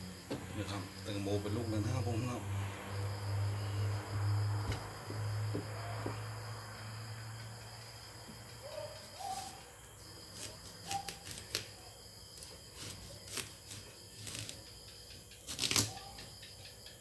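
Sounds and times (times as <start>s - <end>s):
knife cutting watermelon rind: 8.7s - 16.3s.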